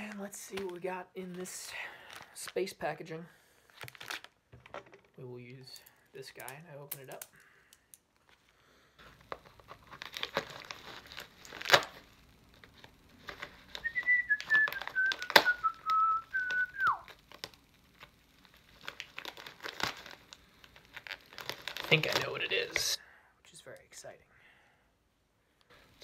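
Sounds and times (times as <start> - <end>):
plastic packaging crinkling and tearing: 0.0 - 2.8, 3.7 - 7.4, 8.1 - 22.9
person whistling: 13.8 - 17.1.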